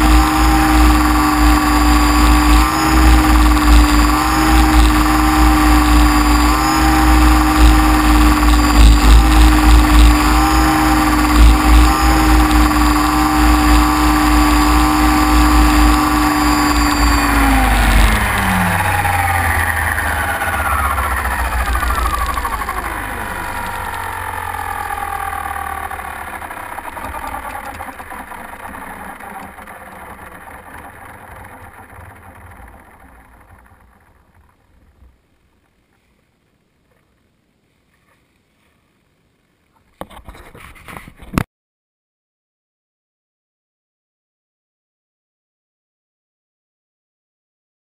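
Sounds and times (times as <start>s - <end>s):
propeller wash: 0.0s - 34.3s
drone motors whining: 0.0s - 35.7s.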